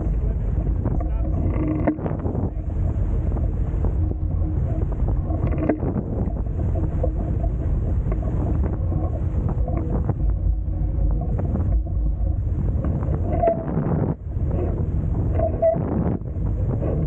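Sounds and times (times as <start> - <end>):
water rushing past hulls: 0.0 - 17.0
wind buffeting microphone: 0.0 - 17.0.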